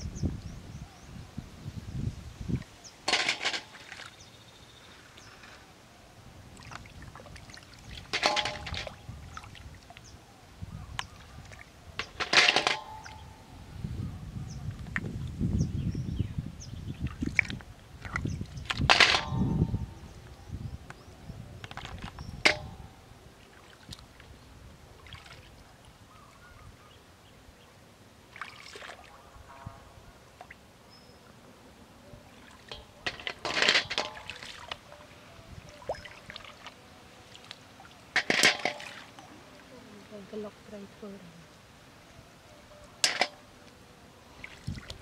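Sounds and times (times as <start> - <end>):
water dripping and sloshing: 2.5 - 4.4, 6.4 - 10.2, 10.9 - 13.3, 17.0 - 20.2, 21.6 - 26.0, 28.3 - 29.1, 32.3 - 40.5, 44.3 - 45.0
shells clacking into metal basin: 3.1 - 4.1, 8.0 - 9.0, 12.0 - 13.4, 18.9 - 19.8, 22.4 - 22.9, 32.7 - 34.8, 38.2 - 39.1, 43.0 - 43.5.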